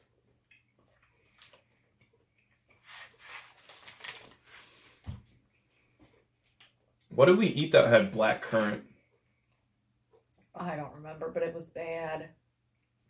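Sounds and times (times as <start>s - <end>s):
plastic wrapper crinkling: 2.7s - 4.9s.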